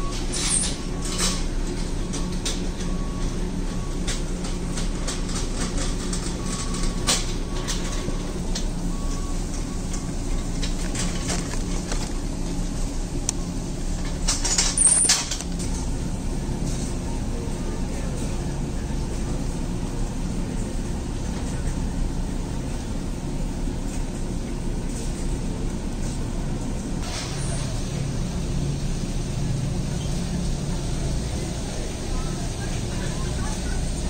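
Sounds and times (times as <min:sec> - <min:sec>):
rustling clatter: 0:10.4 - 0:12.6.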